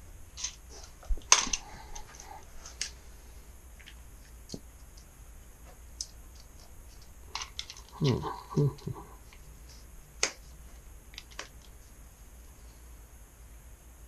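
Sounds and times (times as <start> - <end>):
sharp snap: 10.2 - 10.4.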